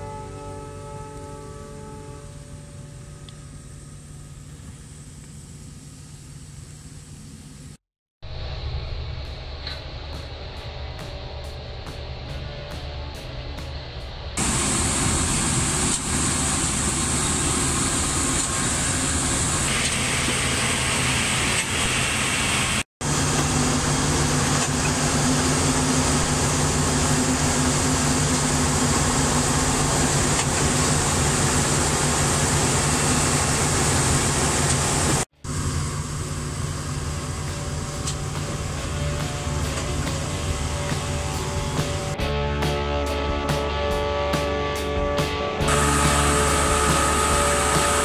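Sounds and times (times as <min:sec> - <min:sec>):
diesel engine running loud: 0:14.4 - 0:42.2, 0:45.6 - 0:48.0.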